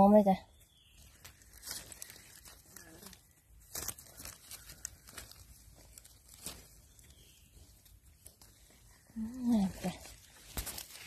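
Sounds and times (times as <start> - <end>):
dry leaves crackling and rustling: 0.0 - 11.0.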